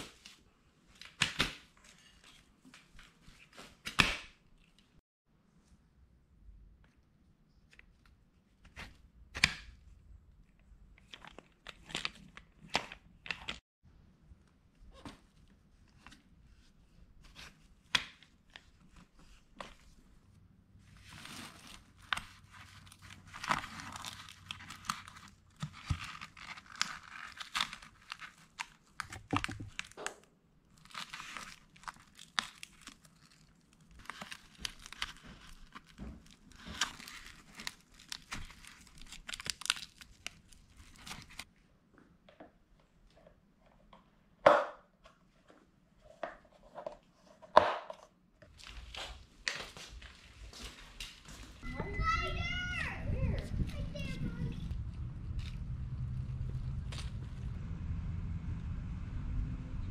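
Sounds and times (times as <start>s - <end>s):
hook-and-loop straps ripping: 21.1s - 41.5s.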